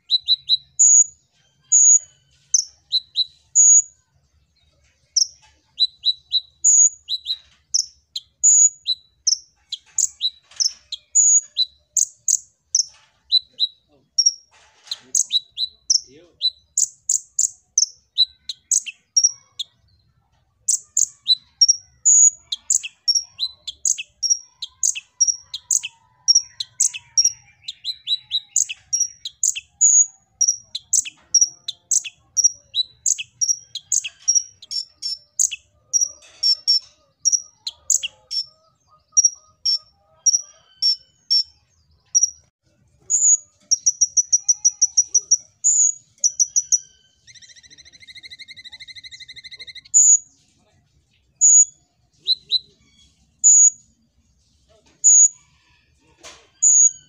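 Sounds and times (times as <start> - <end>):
bird chirping and trilling: 0.0 - 4.0, 4.6 - 50.4, 51.2 - 53.9, 56.6 - 57.0.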